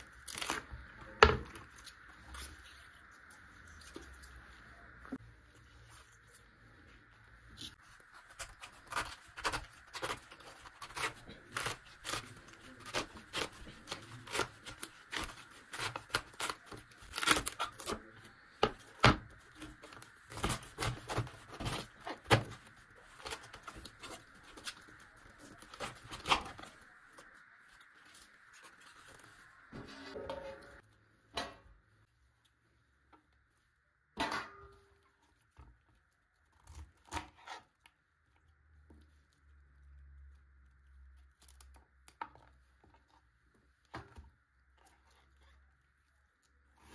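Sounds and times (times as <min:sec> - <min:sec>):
knife crunching through cabbage: 0:07.7 - 0:18.4.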